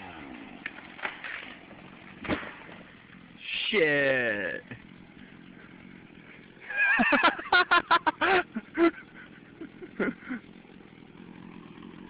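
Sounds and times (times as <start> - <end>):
person laughing or whooping: 6.6 - 10.5.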